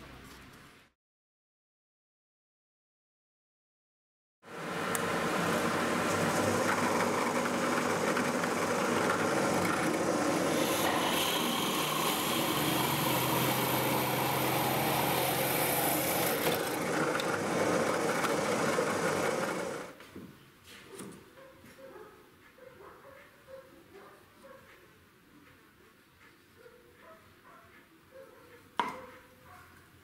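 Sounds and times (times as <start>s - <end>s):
power drill cutting into wood: 4.9s - 19.9s.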